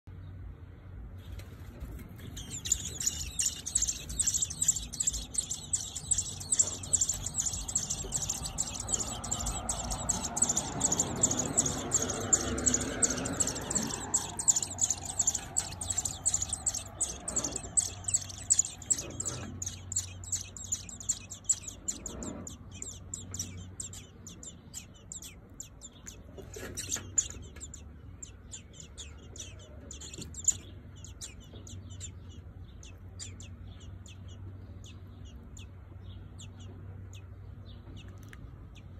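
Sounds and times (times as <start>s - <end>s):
nestlings cheeping: 2.2s - 35.6s.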